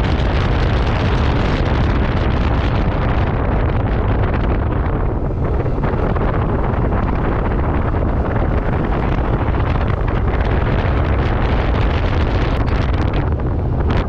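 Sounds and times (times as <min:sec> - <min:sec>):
road noise: 0:00.0 - 0:14.0
wind rushing over microphone: 0:00.0 - 0:14.0.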